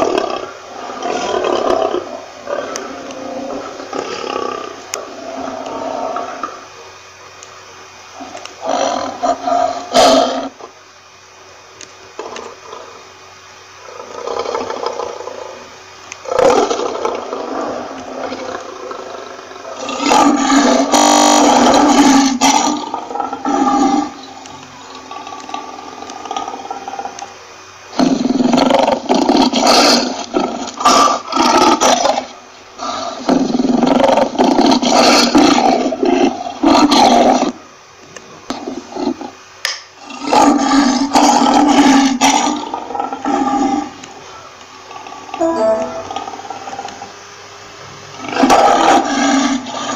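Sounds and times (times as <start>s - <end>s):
lion roaring: 0.0s - 6.6s, 13.8s - 24.2s, 28.0s - 37.6s, 40.0s - 44.0s, 48.2s - 49.9s.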